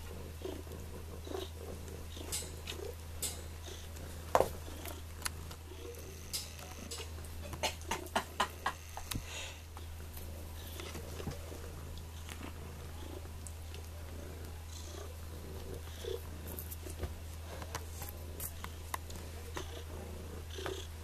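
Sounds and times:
kitten purring: 0:00.0 - 0:21.0
light clicks and scratches: 0:15.6 - 0:20.9.

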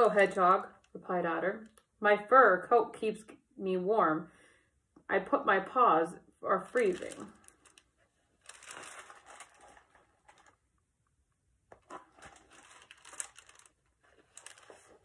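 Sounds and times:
book pages turning: 0:06.8 - 0:10.6, 0:11.7 - 0:15.0
paper rustling: 0:06.8 - 0:10.6, 0:11.7 - 0:15.0.

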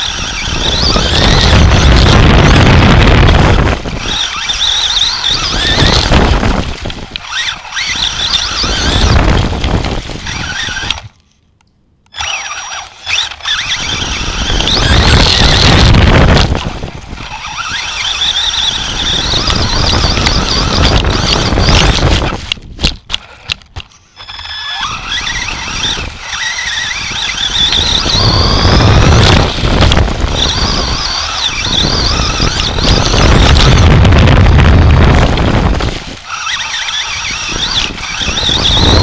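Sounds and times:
toy car motor whine: 0:00.0 - 0:11.2, 0:12.1 - 0:39.0
tyres rumbling on grass: 0:12.2 - 0:39.0.

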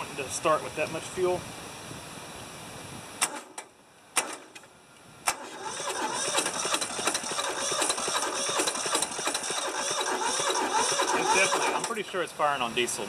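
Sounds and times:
sharp clicks: 0:03.2 - 0:05.4
diesel engine cranking: 0:04.2 - 0:12.5.

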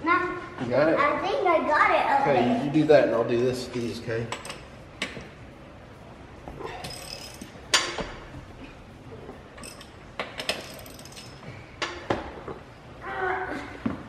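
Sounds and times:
lug wrench on lug nuts: 0:06.6 - 0:08.2, 0:09.6 - 0:12.2.

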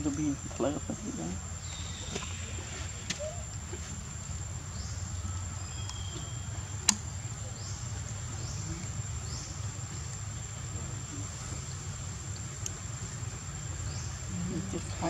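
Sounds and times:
sharp click: 0:05.8 - 0:07.0.

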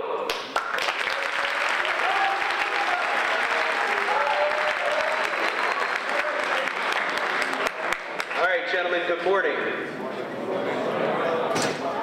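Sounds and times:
audience applauding: 0:00.3 - 0:08.5.

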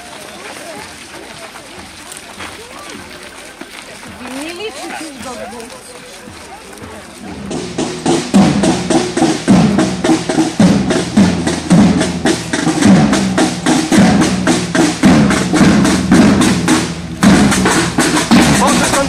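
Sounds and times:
marching snare drums: 0:04.1 - 0:19.0
bass drum thumping: 0:07.2 - 0:19.0.

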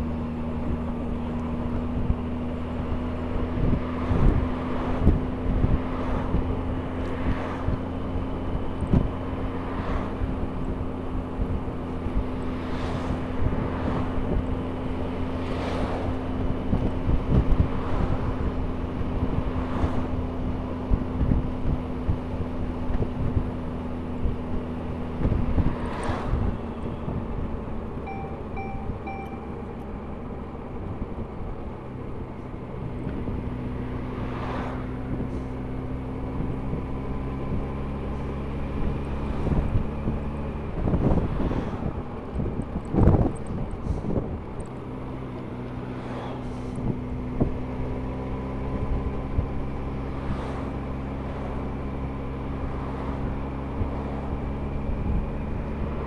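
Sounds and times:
wind rushing over microphone: 0:00.6 - 0:27.9, 0:30.6 - 0:56.0
short beeps: 0:28.0 - 0:29.9.

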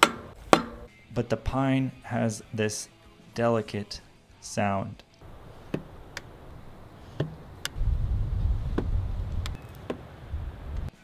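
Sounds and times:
low rumble: 0:07.8 - 0:09.6.

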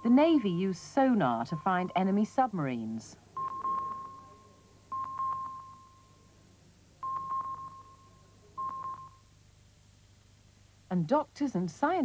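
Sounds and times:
sonar pings: 0:03.4 - 0:06.2, 0:07.0 - 0:09.2.

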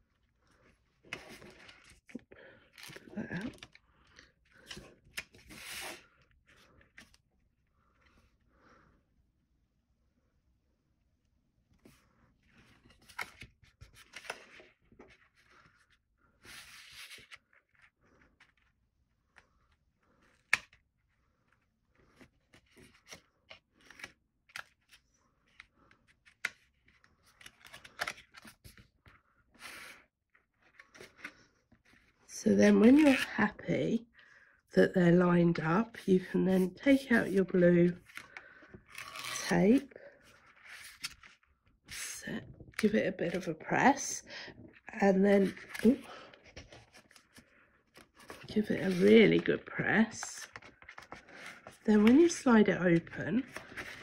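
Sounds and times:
cardstock rustling and scraping: 0:45.3 - 0:54.0
paper rustling and rubbing: 0:45.4 - 0:49.5.

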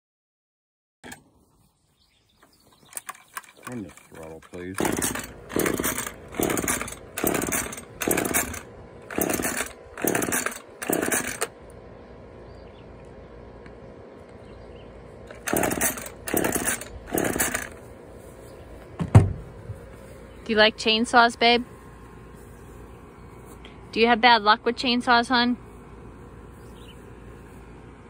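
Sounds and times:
chainsaw recoil starter pulls: 0:02.9 - 0:11.6, 0:15.3 - 0:17.8.

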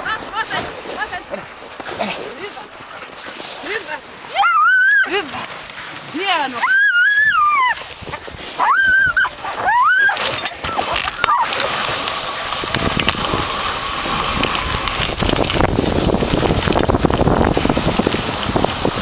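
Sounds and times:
sled runners hissing on snow: 0:00.0 - 0:19.0
sled dogs whining: 0:00.4 - 0:16.9
wind on microphone: 0:06.7 - 0:19.0.

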